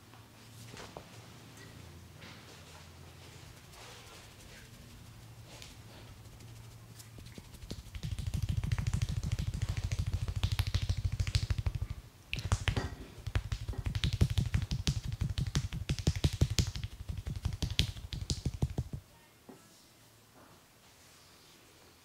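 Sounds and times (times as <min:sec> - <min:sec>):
hands striking in percussive massage: 0:06.3 - 0:19.0
sharp hand slaps: 0:07.6 - 0:19.0.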